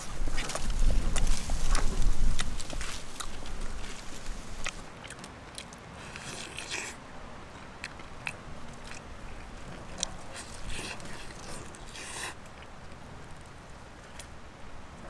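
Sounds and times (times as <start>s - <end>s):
person chewing chicken: 0.0s - 7.0s, 7.7s - 12.7s.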